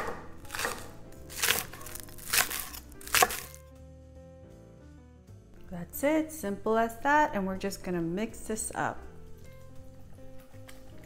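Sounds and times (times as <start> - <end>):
knife chopping on wooden board: 0.0 - 3.6
soft background music: 0.0 - 11.0.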